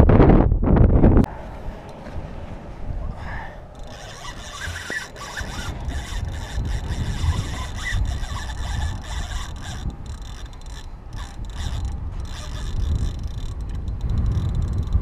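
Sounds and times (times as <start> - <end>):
fishing reel clicking: 3.7 - 15.0.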